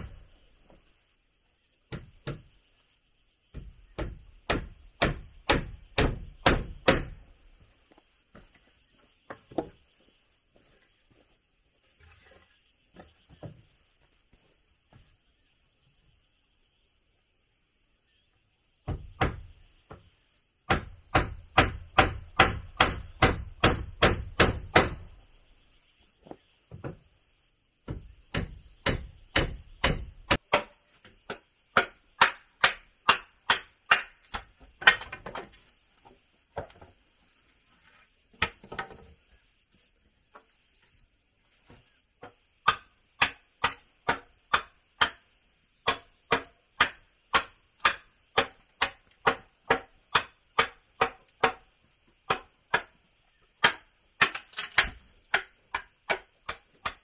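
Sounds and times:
tool striking wood: 3.5s - 7.2s, 20.7s - 25.1s, 27.9s - 35.4s, 42.2s - 51.6s, 53.6s - 57.0s
faint high-pitched hum: 7.1s - 18.8s.

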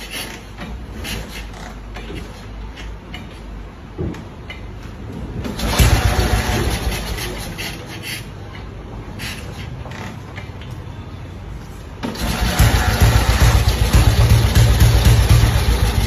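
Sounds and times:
motorcycle engine turning over: 5.4s - 7.8s, 12.0s - 16.0s.

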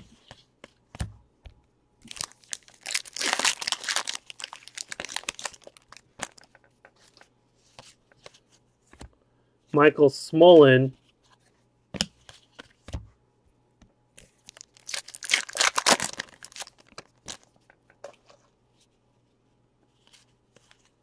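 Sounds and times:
wrapper tearing open: 2.0s - 6.4s, 14.5s - 17.5s.

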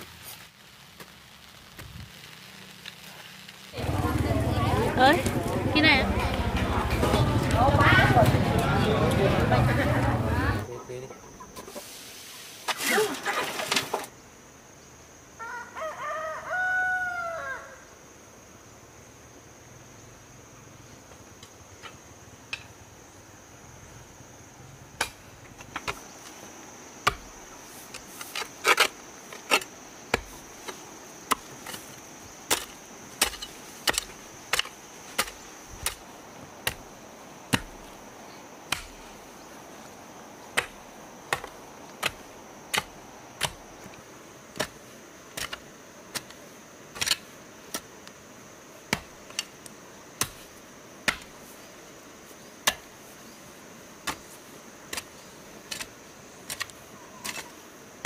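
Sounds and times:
chopping strikes: 51.1s - 51.3s.

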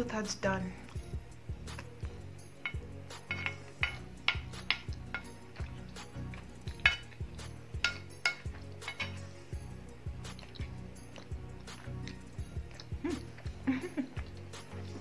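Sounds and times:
quiet background music: 0.0s - 15.0s
spoon clinking on plate: 2.6s - 5.4s, 6.6s - 7.2s, 7.8s - 9.2s.

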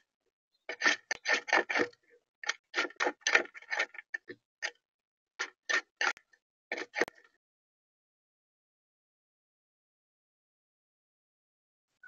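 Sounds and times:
bird pecking in plastic tray: 0.7s - 4.4s.

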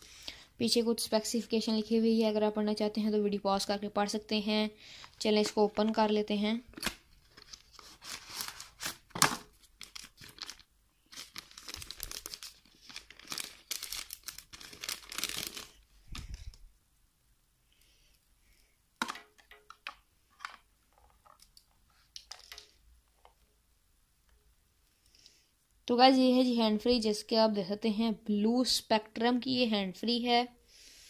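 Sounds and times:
earphone cable rustling: 5.0s - 16.7s, 19.0s - 23.5s
plastic bag crinkling and tearing: 6.7s - 16.6s.

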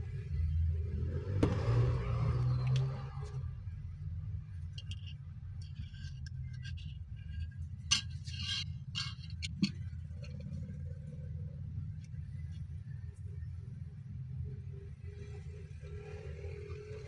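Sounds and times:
steady low hum: 2.9s - 17.0s
steel rod clicking and scraping: 4.6s - 10.7s.

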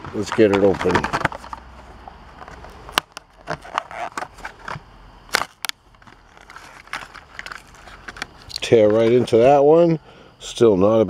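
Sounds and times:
plastic packaging crackling: 0.0s - 1.7s, 2.4s - 9.4s.

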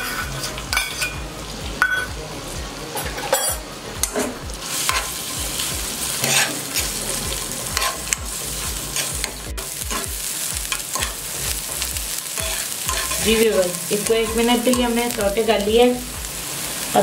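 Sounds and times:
utensil scraping a pan: 0.0s - 1.2s, 6.2s - 7.0s, 7.8s - 8.2s, 12.4s - 14.9s
onion sizzling in hot oil: 0.0s - 17.0s.

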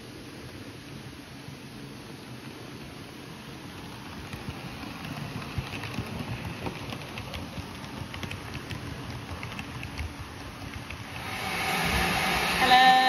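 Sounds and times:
model train rumble: 2.0s - 13.0s
wheels clicking on track: 3.7s - 11.4s.

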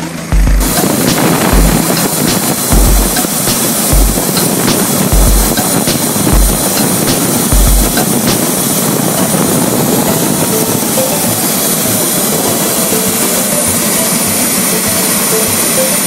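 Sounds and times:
helicopter engine and rotor: 0.0s - 16.0s
high turbine whine: 0.0s - 16.0s.

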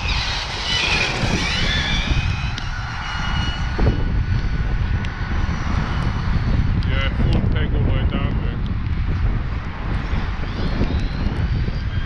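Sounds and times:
electric motor whine: 0.0s - 6.9s
rumble of wind and tyres: 0.0s - 12.0s.

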